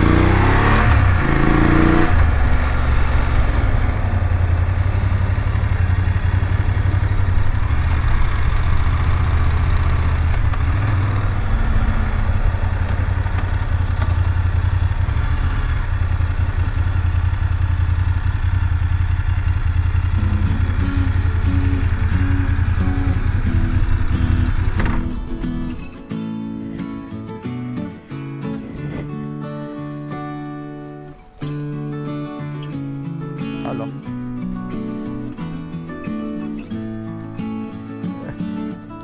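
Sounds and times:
motorcycle engine at low revs: 0.0 - 25.9.

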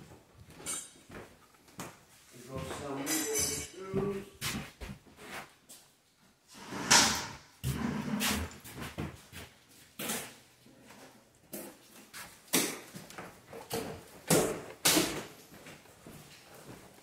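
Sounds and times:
cabinet doors and drawers banging: 6.6 - 8.6.

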